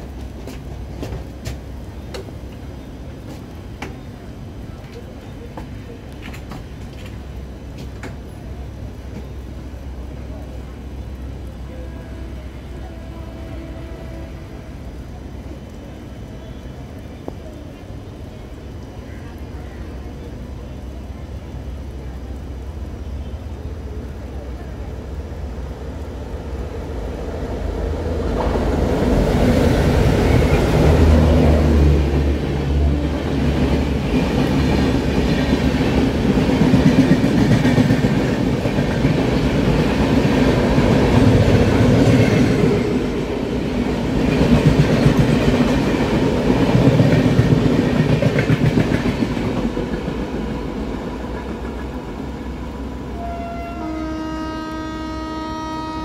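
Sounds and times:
diesel locomotive engines: 0.0 - 56.0
train horn: 11.7 - 14.9, 53.1 - 56.0.

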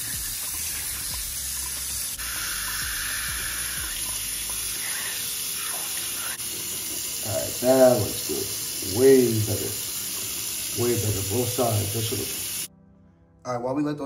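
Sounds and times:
sink tap running: 0.0 - 12.7.

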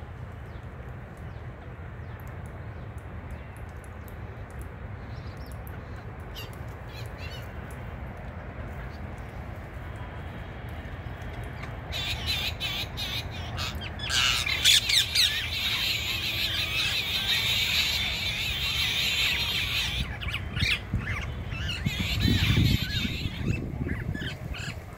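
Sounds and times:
parakeets squawking: 11.6 - 24.8.

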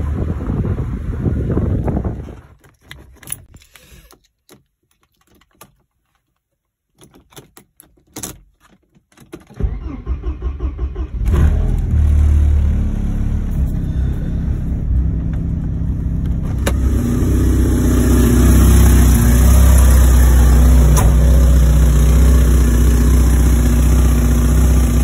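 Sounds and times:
keys jangling in ignition: 2.6 - 9.9
car engine cranking and idling: 8.2 - 25.0.

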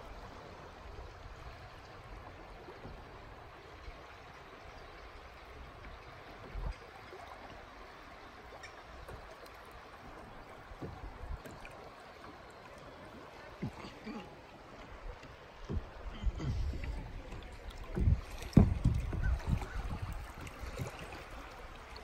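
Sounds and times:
water lapping against kayak: 0.0 - 22.0
soft low thumps: 15.0 - 20.2.

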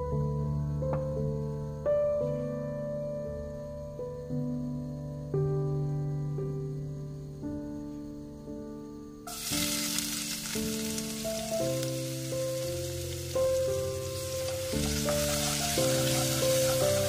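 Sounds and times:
gentle background music: 0.0 - 17.0
vegetables sizzling in hot oil: 9.3 - 17.0
wooden spatula stirring in pot: 9.4 - 17.0.

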